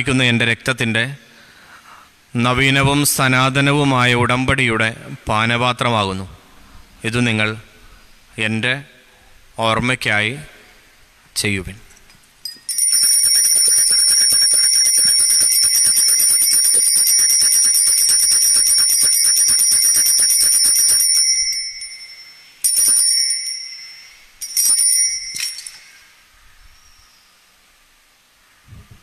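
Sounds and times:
altar bells jingling: 12.4s - 27.5s.

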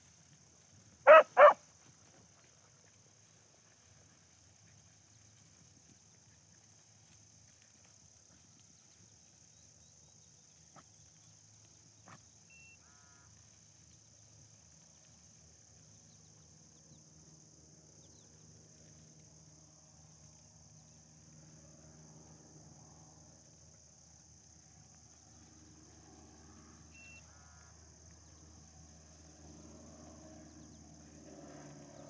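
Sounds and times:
faint call: 1.1s - 1.6s.

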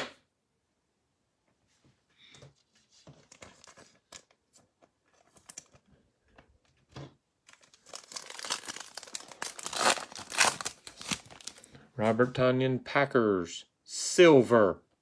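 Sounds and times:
cards being handled: 2.5s - 11.7s
foil wrapper crinkling and tearing: 7.4s - 11.7s.

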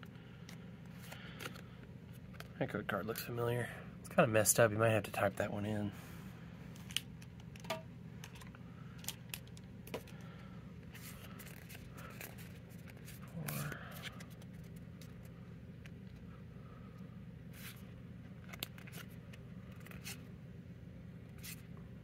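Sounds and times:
steady low hum: 0.0s - 22.0s
cards being flipped through: 0.4s - 2.6s, 6.8s - 16.2s, 17.5s - 20.3s, 21.3s - 21.7s.

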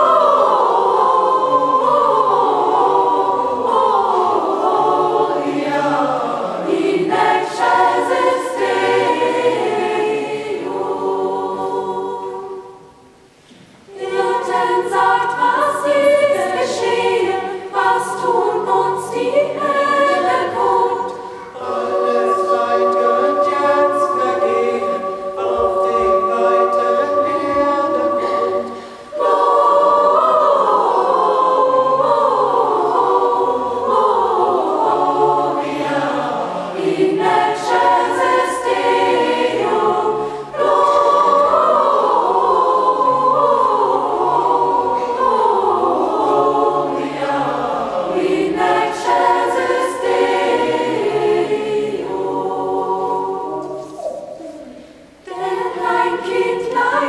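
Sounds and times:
choir singing unaccompanied: 0.0s - 57.0s.

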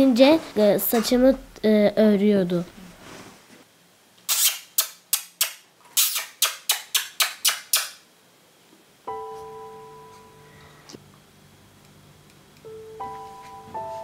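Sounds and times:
kissing clicks with lips: 4.2s - 8.0s.

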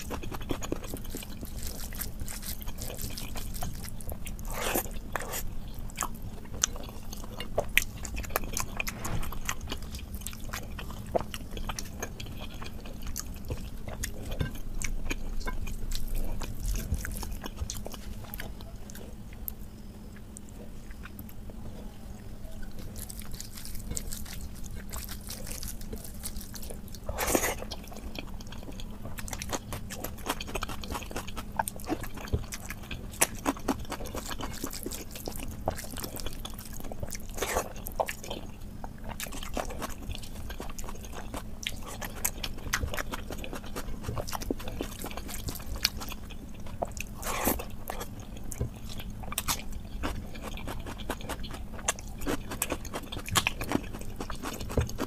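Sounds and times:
wet chewing and mouth smacks: 22.8s - 55.0s.

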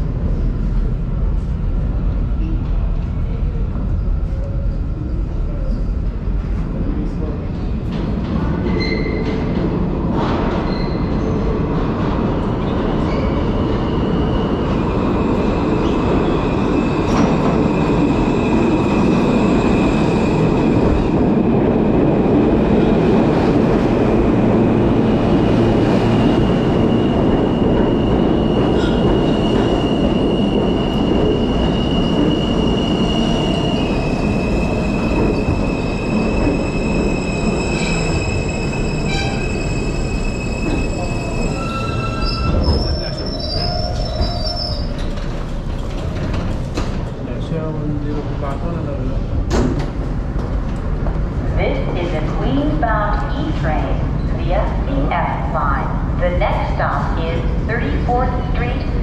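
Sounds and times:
train wheels rumbling on rail: 0.0s - 59.0s
high-pitched wheel squeal: 35.7s - 45.1s.

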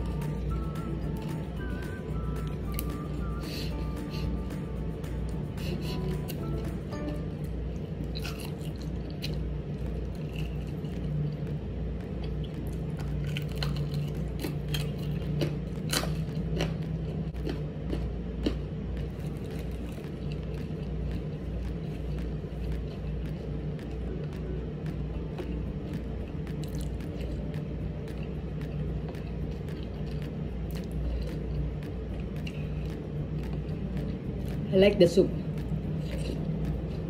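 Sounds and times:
steady low hum: 0.0s - 37.0s
crunchy chewing: 7.8s - 34.7s, 35.4s - 37.0s.

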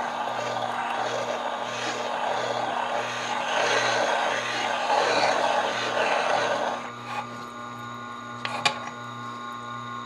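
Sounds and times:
metal scraping on grinding stone: 0.0s - 7.4s
grinder motor hum: 0.0s - 10.0s.

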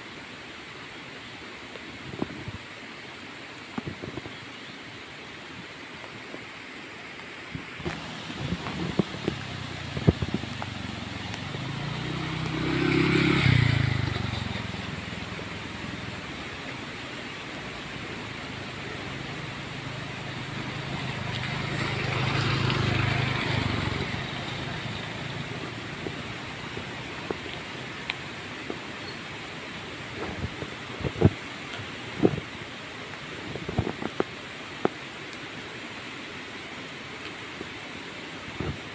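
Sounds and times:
steady hiss: 0.0s - 38.9s
motor scooters passing: 7.9s - 29.4s.

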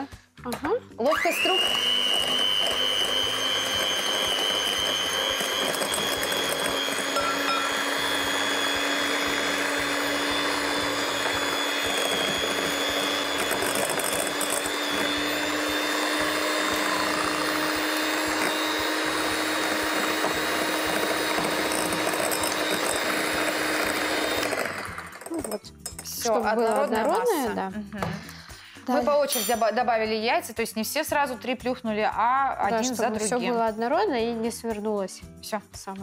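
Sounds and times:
electric mixer whirring: 1.0s - 25.6s.

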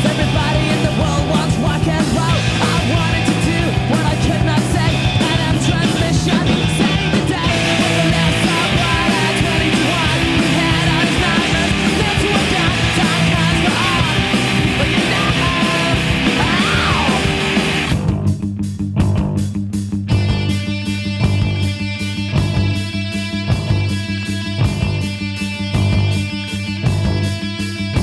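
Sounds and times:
bass: 0.0s - 28.0s
distorted noise-rock guitars: 0.0s - 28.0s
drums: 0.0s - 28.0s
sliding guitar squeals: 13.8s - 18.0s.

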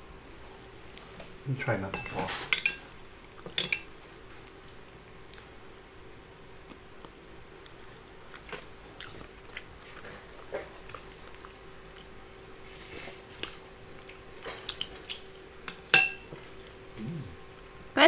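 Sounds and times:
quiet chewing: 4.4s - 5.6s, 6.6s - 18.0s.

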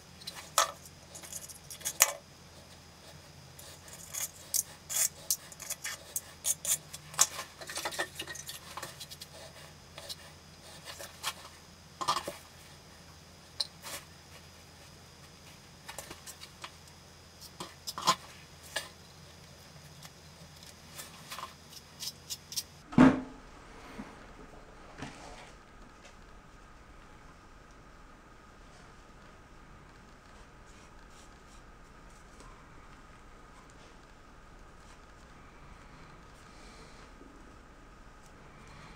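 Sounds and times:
loud thump: 22.9s - 23.4s.

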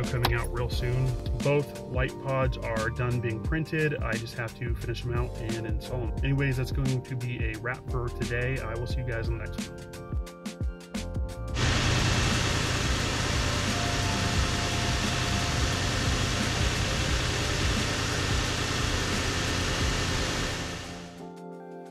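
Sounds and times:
intake and fan hiss: 11.5s - 21.2s
car engine idling: 11.6s - 21.2s.

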